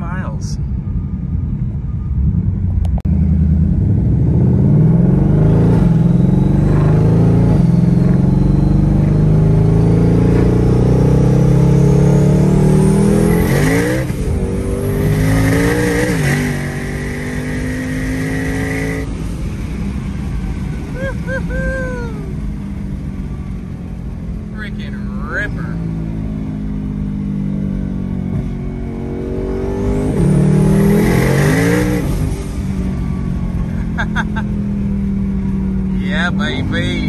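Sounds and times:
car engine accelerating: 0:01.8 - 0:37.0
turbo whine: 0:05.0 - 0:19.1.

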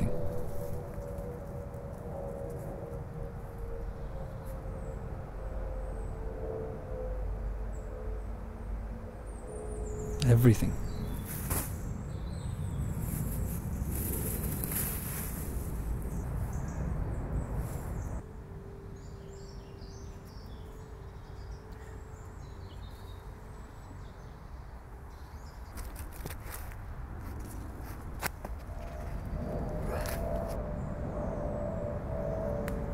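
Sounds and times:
low noisy rumble: 0:00.0 - 0:25.6, 0:26.9 - 0:32.9
birds chirping: 0:09.2 - 0:18.2
plastic bag rustling: 0:13.1 - 0:15.9.

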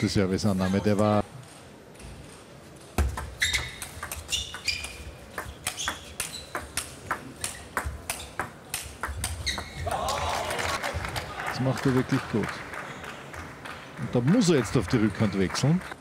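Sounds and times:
shoes squeaking on floor: 0:03.0 - 0:09.9.

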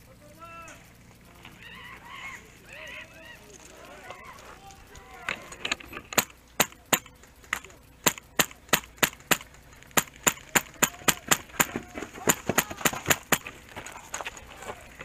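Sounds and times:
airsoft rifle shots: 0:04.8 - 0:13.6.

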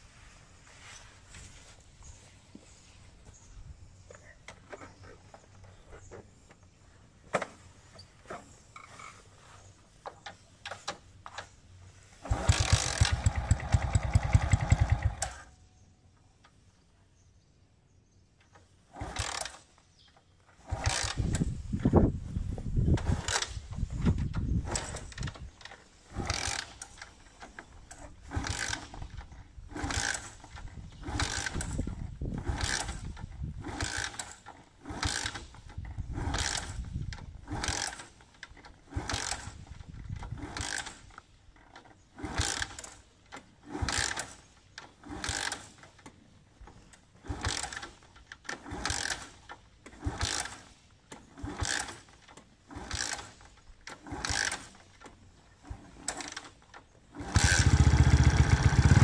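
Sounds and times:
motorcycle being kick-started: 0:12.2 - 0:15.7, 0:18.4 - 0:22.0, 0:22.8 - 0:59.0.

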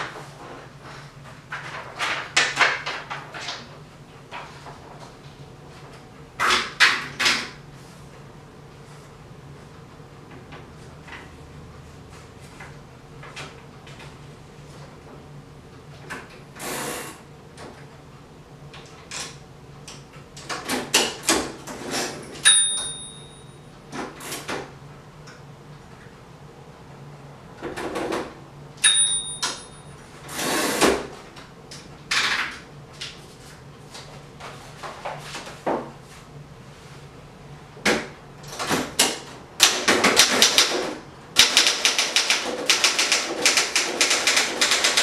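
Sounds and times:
typewriter carriage bell ding: 0:22.4 - 0:23.7, 0:28.8 - 0:30.0
typewriter clicks and rattles: 0:38.4 - 0:45.0.

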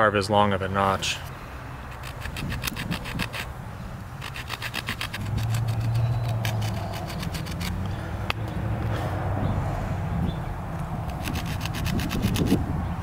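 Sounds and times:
stone sawing into wood: 0:01.9 - 0:03.5, 0:04.2 - 0:07.8, 0:11.1 - 0:12.6.

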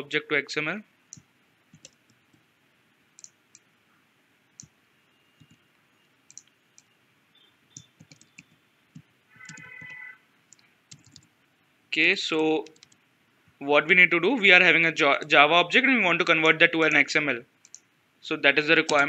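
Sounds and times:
keyboard key presses: 0:01.1 - 0:02.4, 0:05.4 - 0:05.6, 0:07.7 - 0:11.3
mouse clicks: 0:03.2 - 0:03.7, 0:06.3 - 0:06.9, 0:12.6 - 0:13.0.

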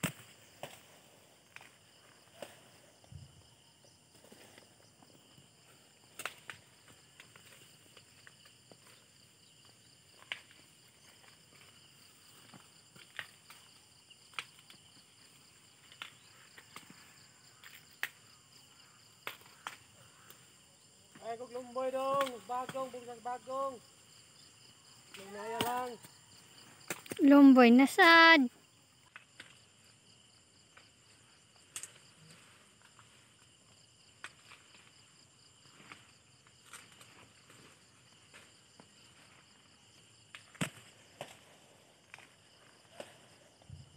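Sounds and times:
high-pitched insect chorus: 0:00.0 - 0:43.9
dry corn stalks crackling: 0:04.1 - 0:20.5, 0:21.1 - 0:24.4, 0:25.0 - 0:28.4, 0:34.2 - 0:35.0, 0:35.7 - 0:39.7, 0:40.3 - 0:43.5
dry corn stalks snapping: 0:06.1 - 0:06.6, 0:14.3 - 0:14.8, 0:15.8 - 0:17.0, 0:19.2 - 0:20.4, 0:22.0 - 0:23.0, 0:25.0 - 0:26.1, 0:26.9 - 0:27.2, 0:31.7 - 0:32.0, 0:35.8 - 0:38.5, 0:40.3 - 0:41.5.

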